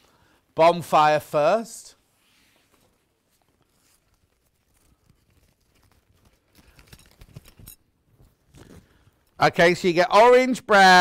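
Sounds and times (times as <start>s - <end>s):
packaging rustling and crinkling: 2.6s - 9.2s.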